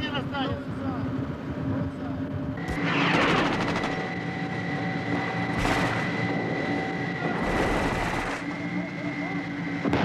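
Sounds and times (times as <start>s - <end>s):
armoured vehicle engine running: 0.0s - 10.0s
gunfire: 5.6s - 6.0s.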